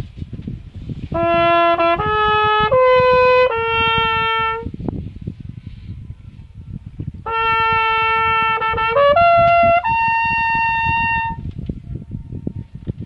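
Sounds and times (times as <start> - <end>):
trumpet echo off mountains: 1.1 - 4.7, 7.2 - 11.4
trumpet playing: 1.1 - 4.7, 7.2 - 11.4.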